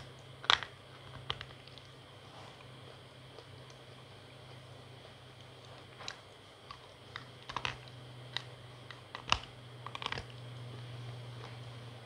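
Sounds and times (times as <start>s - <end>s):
teeth crunching dry chunk: 0.0s - 2.0s, 5.8s - 10.8s
steady low hum: 0.0s - 12.0s.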